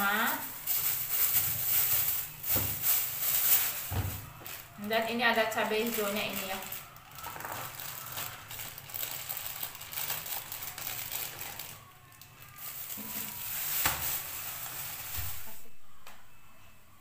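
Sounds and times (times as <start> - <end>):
plastic bags crinkling: 0.0 - 15.6.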